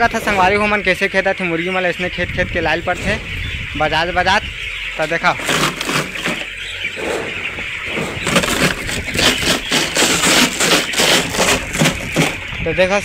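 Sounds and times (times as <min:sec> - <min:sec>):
plastic container banging: 0:05.0 - 0:12.6.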